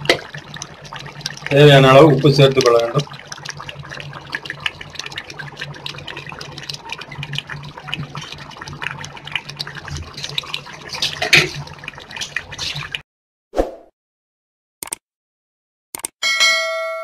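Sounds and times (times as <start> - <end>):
curry boiling and bubbles popping: 0.0 - 13.0.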